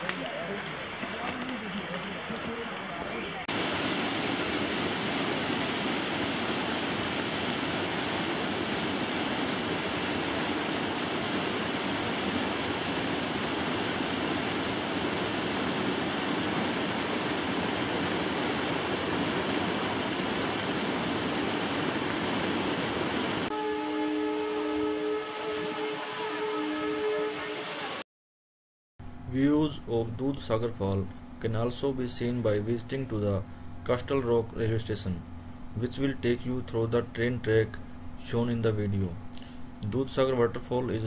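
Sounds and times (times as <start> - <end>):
water rushing over rocks: 3.5 - 23.5
train horn: 23.5 - 28.0.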